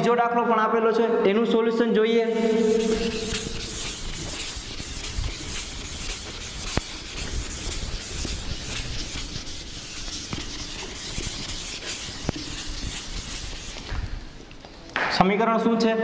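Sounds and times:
duster rubbing chalkboard: 2.3 - 14.5.

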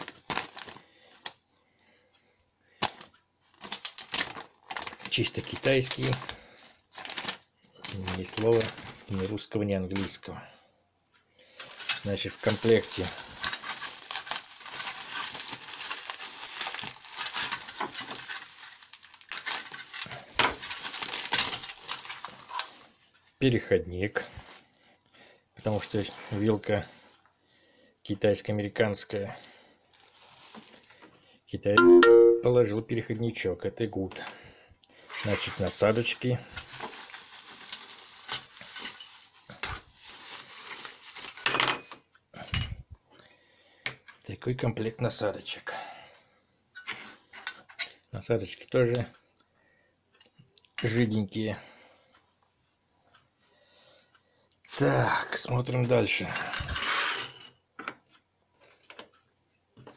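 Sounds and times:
bubble wrap crinkling: 0.0 - 1.4, 2.8 - 10.2, 11.6 - 23.4, 29.9 - 31.0, 35.0 - 41.5.

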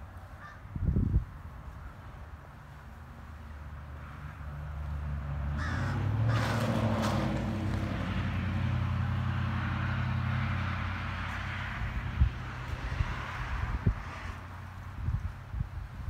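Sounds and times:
low engine hum: 0.0 - 16.0
crow cawing: 0.4 - 0.7, 5.6 - 6.6.

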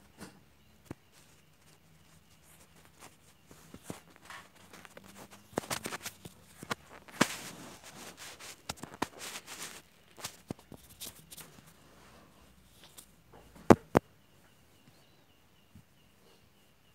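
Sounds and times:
hand rubbing fur and bedding: 1.0 - 13.1.

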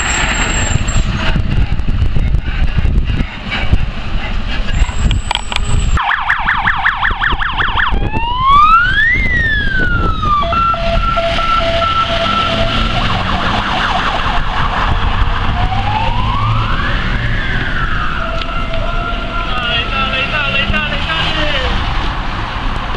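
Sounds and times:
fire engine siren: 6.0 - 22.1.

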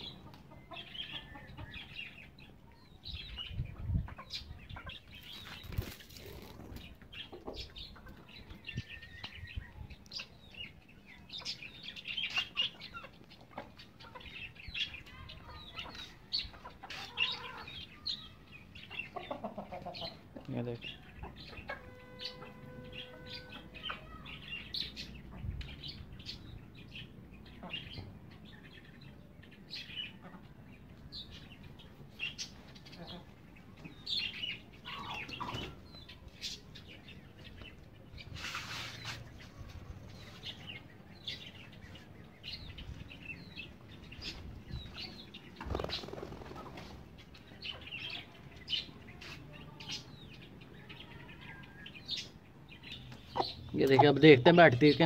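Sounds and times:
birds chirping: 0.0 - 55.0
wing flapping: 45.6 - 47.0.

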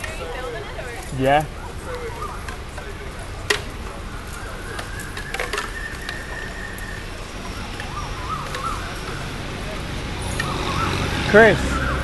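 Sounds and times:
birds chirping faintly: 0.0 - 12.0
bamboo wind chime clacking: 3.4 - 10.6.

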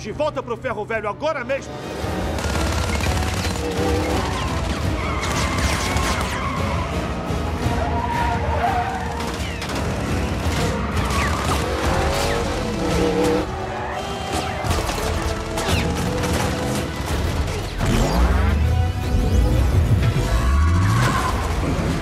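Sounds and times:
action music: 0.0 - 22.0
car engines revving: 6.5 - 15.6, 16.2 - 22.0.

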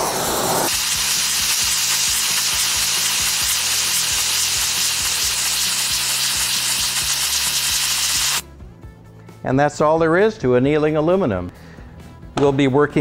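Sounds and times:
welding torch flame hissing: 0.0 - 8.4.

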